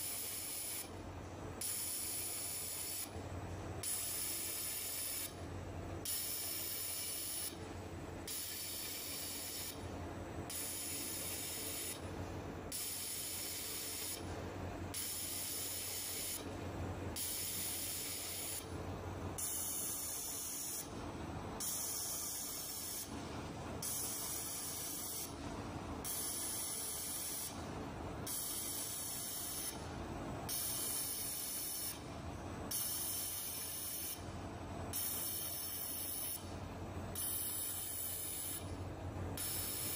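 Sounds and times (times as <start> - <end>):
laser welding hiss: 0.0 - 0.9, 1.6 - 3.1, 3.8 - 5.4, 6.1 - 7.6, 8.3 - 9.8, 10.5 - 12.0, 12.8 - 14.2, 15.0 - 16.4, 17.2 - 18.7, 19.4 - 20.9, 21.6 - 23.1, 23.9 - 25.4, 26.1 - 27.6, 28.3 - 29.8, 30.5 - 32.0, 32.8 - 34.2, 35.0 - 36.4, 37.2 - 38.6, 39.4 - 39.9.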